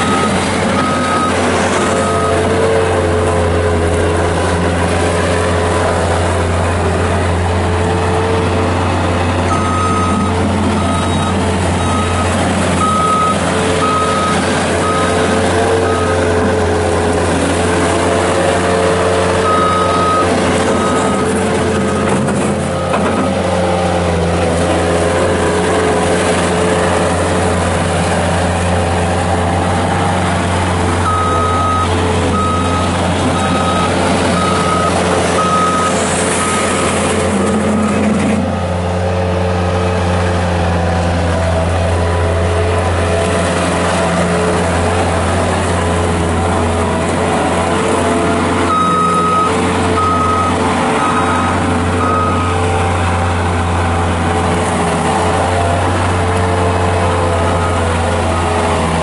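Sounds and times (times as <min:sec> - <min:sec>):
diesel engine running: 0:00.0 - 0:59.0
loader driving on gravel: 0:00.0 - 0:59.0
backup alarm beeping: 0:09.5 - 0:16.2, 0:19.4 - 0:21.2, 0:31.0 - 0:36.8, 0:48.7 - 0:52.6.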